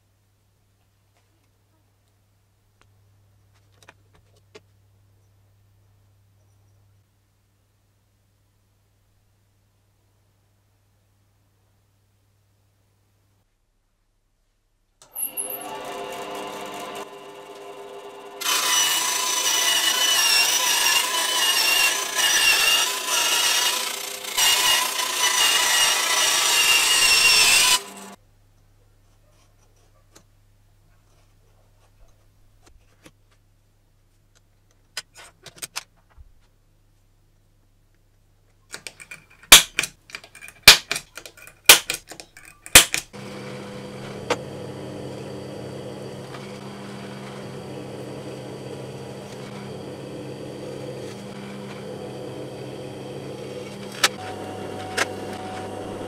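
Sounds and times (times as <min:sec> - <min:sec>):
bandsaw cutting metal: 0:15.0 - 0:28.2, 0:42.7 - 0:56.0
drill press motor running: 0:15.0 - 0:28.2, 0:43.2 - 0:56.0.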